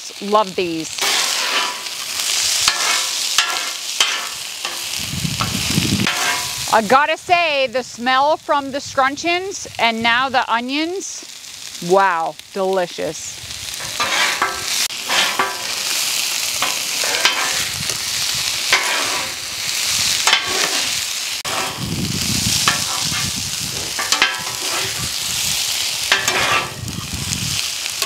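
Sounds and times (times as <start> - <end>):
onions sizzling on griddle: 0.0 - 28.0
metal spatulas scraping griddle: 1.0 - 5.0, 6.0 - 6.6, 13.7 - 17.8, 18.6 - 21.9, 22.5 - 27.2.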